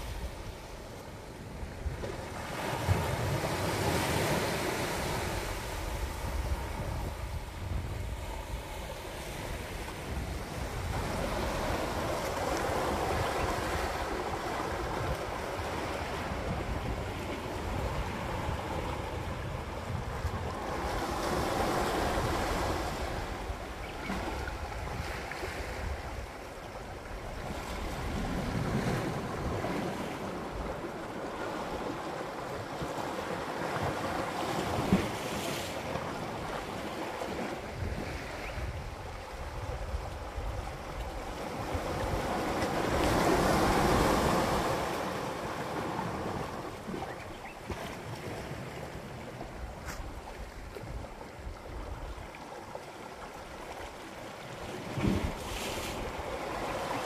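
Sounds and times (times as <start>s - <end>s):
sea waves on rocky shore: 0.0s - 57.0s.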